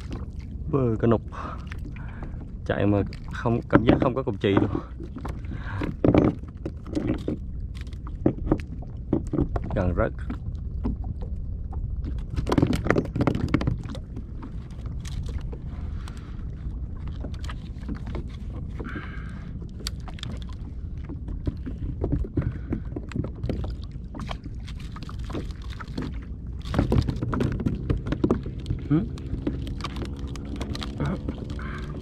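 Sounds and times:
steady low water rush: 0:00.0 - 0:32.0
water lapping against kayak hull: 0:00.0 - 0:32.0
knocks on boat: 0:26.7 - 0:28.6.

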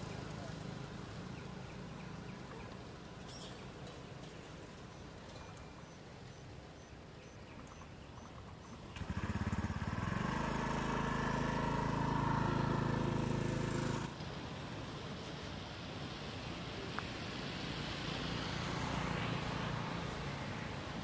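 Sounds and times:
faint outdoor background: 0:00.0 - 0:21.0
engine humming: 0:08.7 - 0:15.3.

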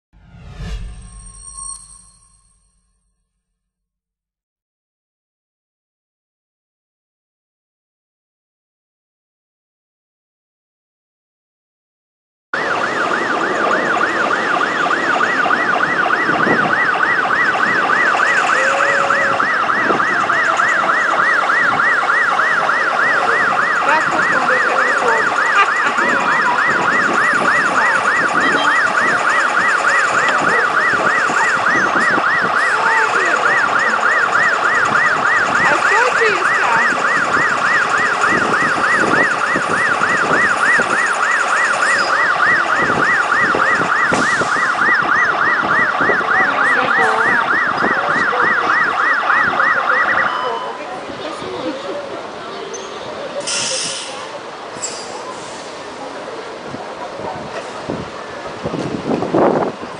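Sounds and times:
fire truck siren yelping: 0:12.6 - 0:52.4, 0:53.3 - 0:59.9.

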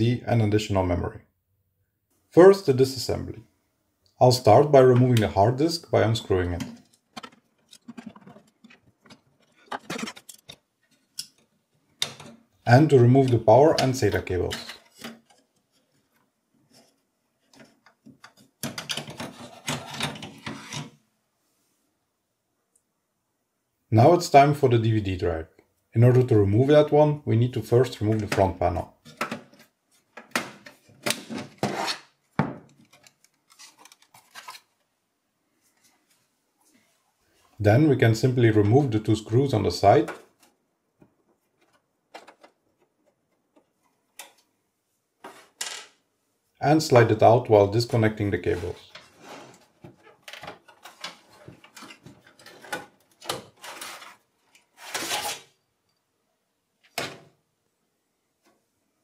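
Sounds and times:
metal case scraping and knocking: 0:06.6 - 0:10.5.

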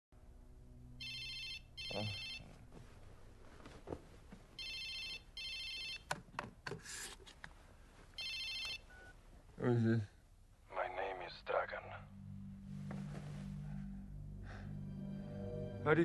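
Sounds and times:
telephone ringing: 0:01.0 - 0:02.4, 0:04.6 - 0:06.1, 0:08.2 - 0:09.1.

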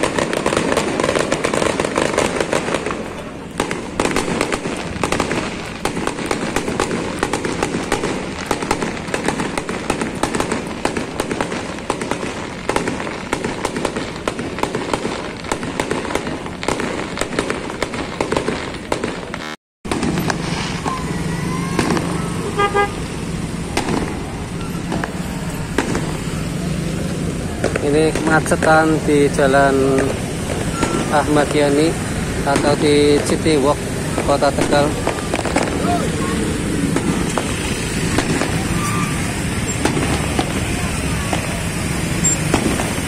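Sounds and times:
fireworks crackling and popping: 0:00.0 - 0:43.0
street traffic idling: 0:00.0 - 0:43.0
vehicle horn toot: 0:22.4 - 0:23.1.

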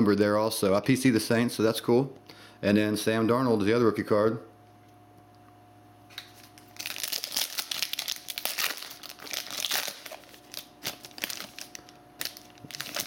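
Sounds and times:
foil wrapper crinkling and tearing: 0:06.1 - 0:13.0.

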